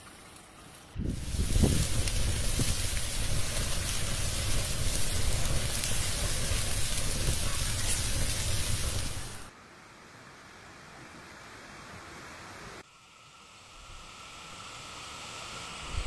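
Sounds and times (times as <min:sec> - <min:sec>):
chicken frying in hot oil: 0:01.0 - 0:09.5
low rumble: 0:01.0 - 0:09.5.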